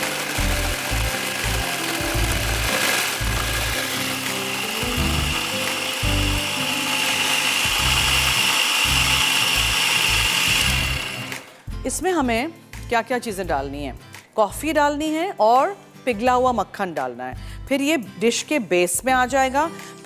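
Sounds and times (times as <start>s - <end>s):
food processor whirring: 0.0s - 11.7s.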